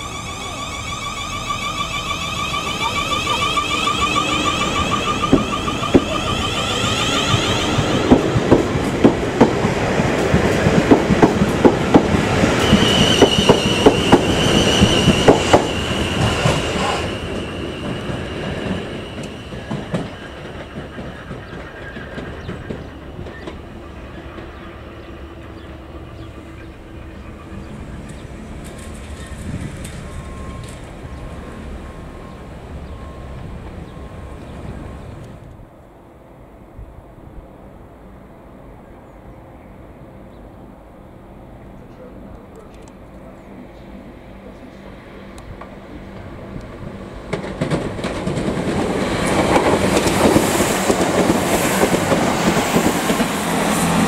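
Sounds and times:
high steady squeal: 0.0s - 8.5s, 12.5s - 35.2s
train rumble: 0.0s - 54.0s.

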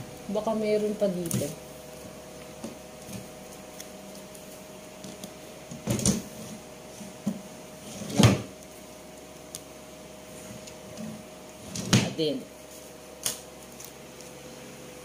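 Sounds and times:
drawer banging shut: 8.0s - 8.5s.

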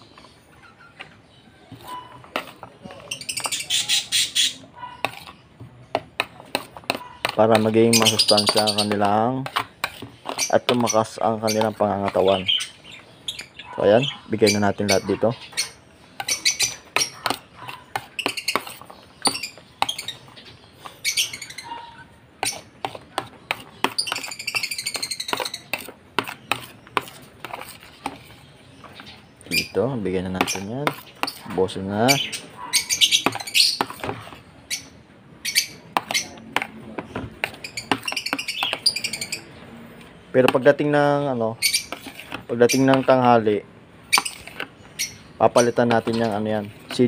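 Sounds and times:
lovebirds chirping: 0.0s - 47.0s
metal spoon clinking plastic bowls: 1.7s - 3.9s, 6.0s - 12.7s, 22.4s - 34.4s, 40.4s - 47.0s.

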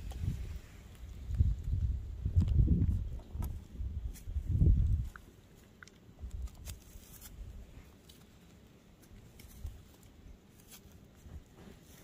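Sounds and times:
rustling in straw: 6.4s - 12.0s.

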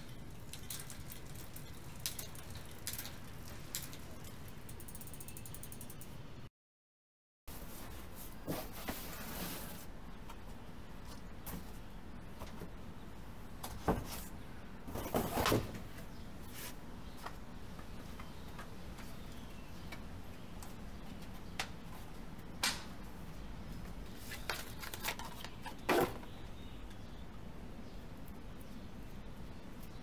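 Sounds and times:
low background noise: 7.5s - 30.0s
knocks scrapes and rustles: 7.6s - 9.9s, 13.8s - 16.8s.

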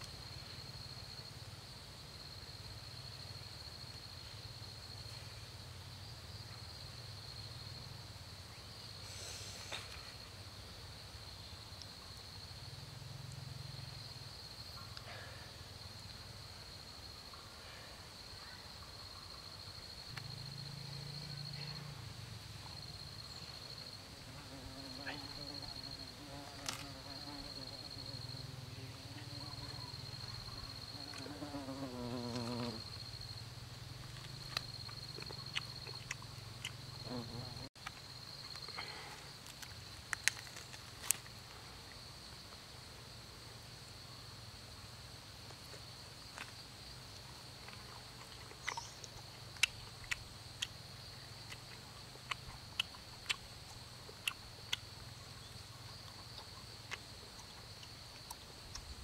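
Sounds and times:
insect trilling: 19.4s - 39.6s, 47.6s - 59.0s.

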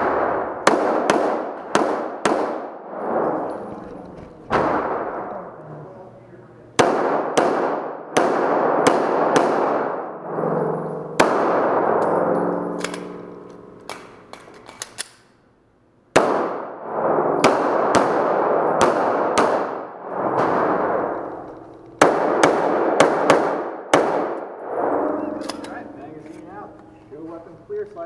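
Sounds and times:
pistol shots echoing: 0.0s - 3.3s, 6.8s - 10.2s, 11.1s - 15.0s, 16.1s - 21.4s, 22.0s - 26.2s.

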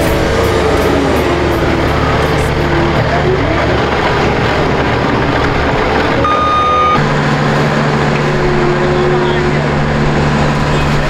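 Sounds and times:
diesel engines running: 0.0s - 11.0s
backup alarm beep: 6.2s - 7.0s.

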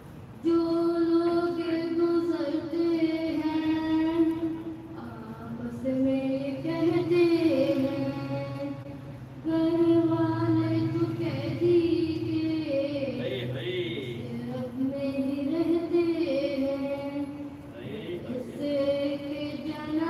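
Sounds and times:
solo voice chanting: 16.5s - 19.9s.

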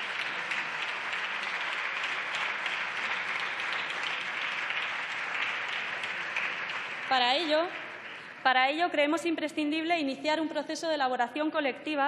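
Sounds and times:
audience applause: 0.0s - 8.5s.

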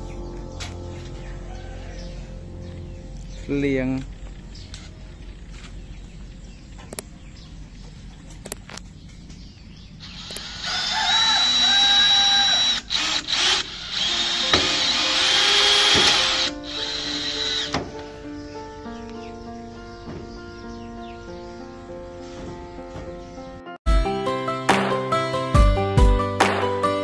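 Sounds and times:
background music: 0.0s - 5.5s, 13.9s - 27.0s
cordless drill whining into wood: 10.0s - 17.8s.

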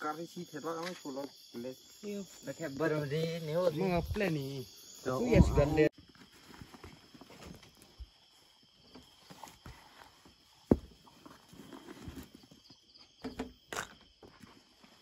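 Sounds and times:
night insects trilling: 0.0s - 15.0s
rustles: 6.0s - 12.8s.

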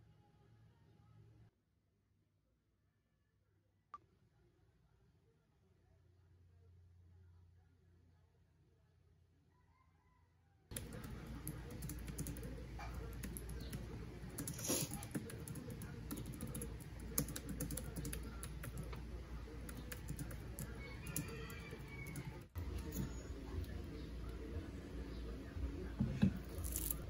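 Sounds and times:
fast typing on keyboard: 10.7s - 19.0s, 19.7s - 22.3s.

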